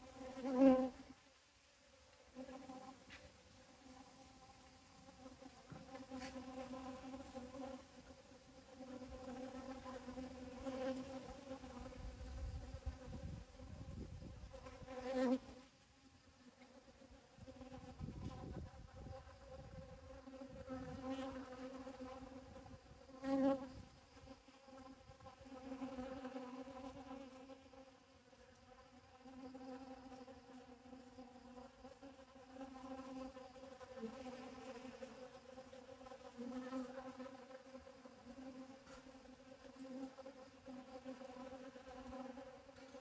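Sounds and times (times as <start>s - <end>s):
honeybees buzzing: 0.0s - 1.2s, 2.3s - 43.0s.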